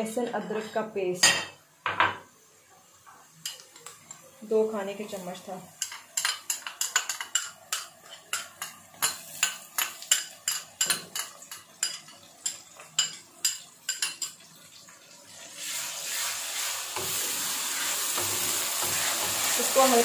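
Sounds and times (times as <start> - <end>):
onions sizzling in hot oil: 2.4 - 20.0
utensils clinking on steel pan: 5.8 - 14.4.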